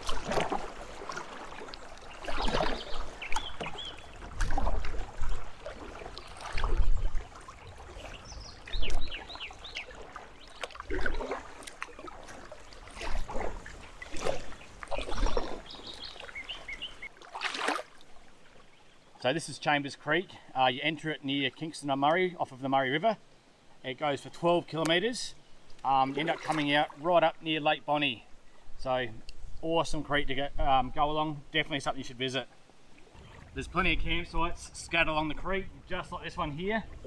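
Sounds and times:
paddle splashing in water: 0.0 - 18.7, 25.8 - 27.1, 32.9 - 33.6
birds chirping: 1.3 - 4.3, 4.9 - 11.3, 12.0 - 17.1.

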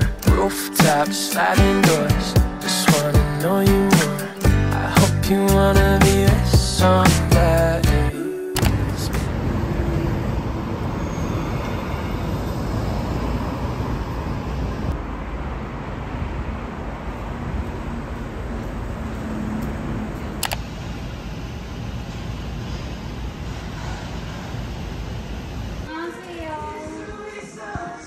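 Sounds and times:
sharp click: 8.6 - 8.8, 20.4 - 20.6
traffic noise: 8.6 - 27.8.

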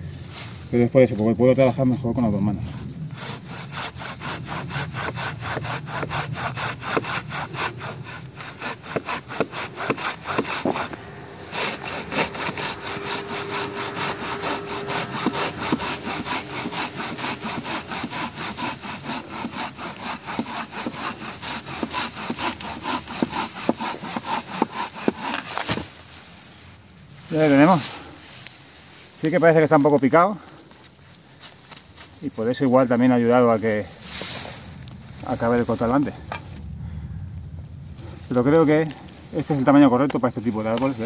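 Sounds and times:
hand saw cutting a log: 2.6 - 26.5, 27.2 - 29.8, 39.4 - 41.0.

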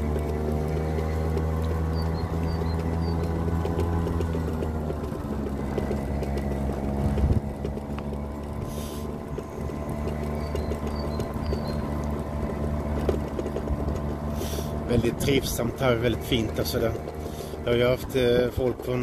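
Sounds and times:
electric motor hum: 0.0 - 15.1
knocks and rattles: 0.0 - 19.0.

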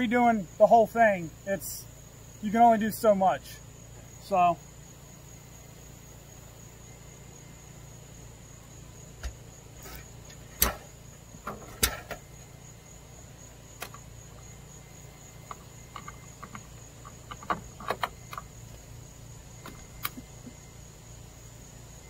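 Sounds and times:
insect trill: 0.0 - 22.0
sharp clicks and knocks: 9.2 - 12.4, 13.8 - 14.4, 15.3 - 18.9, 19.6 - 20.6.

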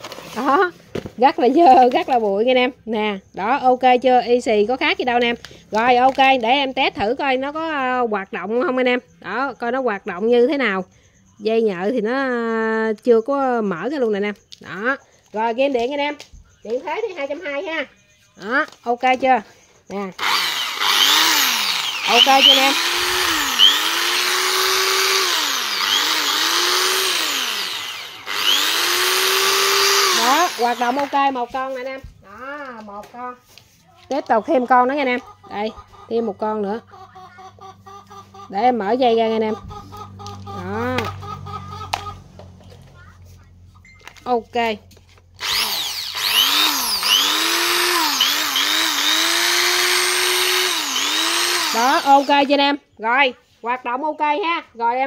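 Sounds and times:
electric drill motor whine: 20.2 - 31.3, 45.4 - 52.5.

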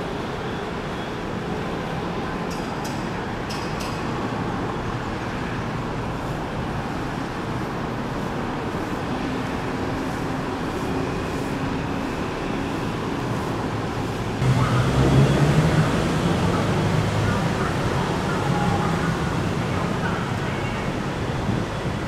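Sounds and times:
road traffic rumble: 0.0 - 22.0.

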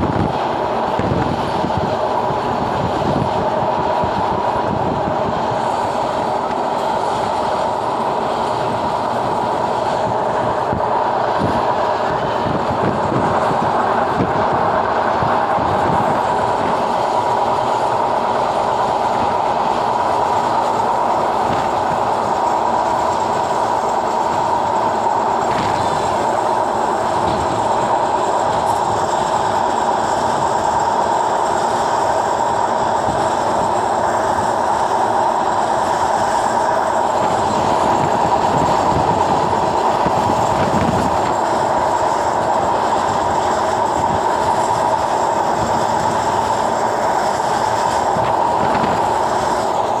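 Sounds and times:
train wheels rushing on rails: 0.0 - 50.0.

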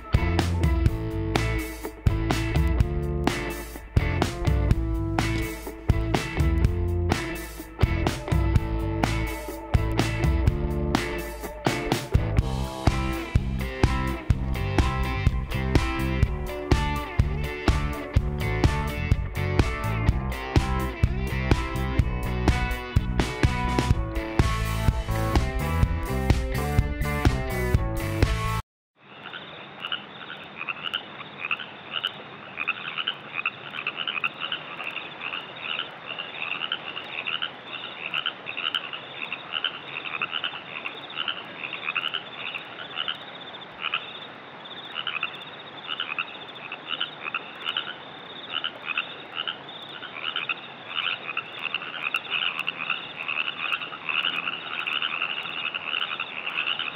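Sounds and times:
treefrogs calling: 29.0 - 56.9.

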